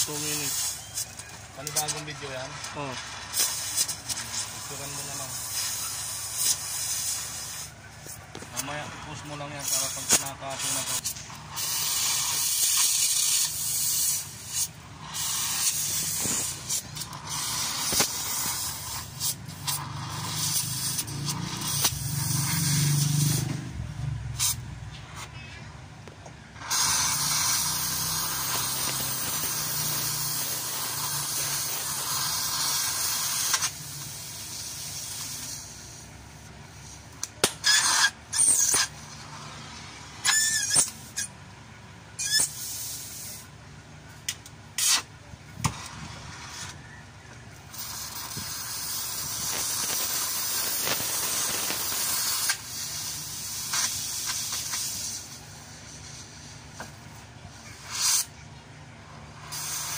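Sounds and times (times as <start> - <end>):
short sharp high squeals: 0.0 - 23.6, 26.6 - 33.8, 37.6 - 39.3, 40.2 - 41.4, 42.2 - 43.4, 44.8 - 45.1, 57.8 - 58.4
gas torch flame hissing: 0.0 - 25.4, 26.6 - 41.3, 42.2 - 43.5, 44.2 - 47.0, 47.6 - 58.4, 59.1 - 59.9.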